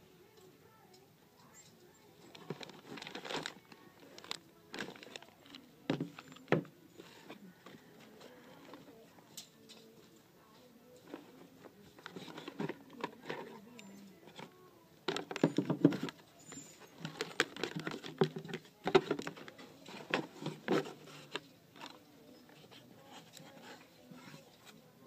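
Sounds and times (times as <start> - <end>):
objects rustling in cardboard box: 2.3 - 7.4.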